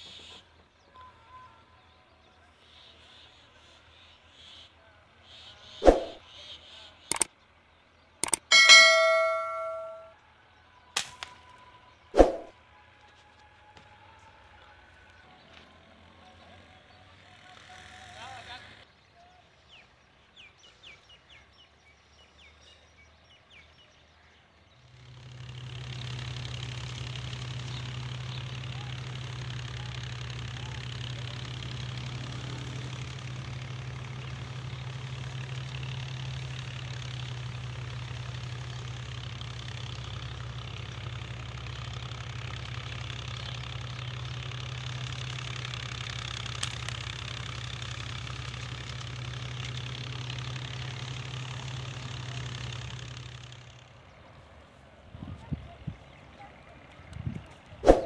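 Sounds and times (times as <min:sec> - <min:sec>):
steady engine hum: 0:00.0 - 0:58.0
sharp click: 0:05.8 - 0:06.2, 0:08.2 - 0:10.1.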